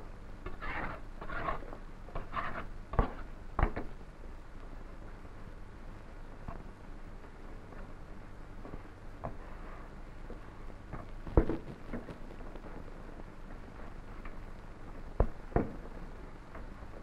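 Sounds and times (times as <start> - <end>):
old recording hiss: 0.0 - 17.0
dough being kneaded by hand: 8.6 - 17.0.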